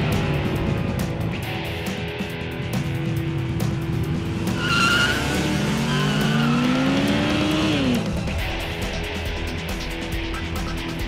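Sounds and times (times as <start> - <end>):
motorcycle engine revving: 4.1 - 8.6
tyre squeal: 4.6 - 6.9.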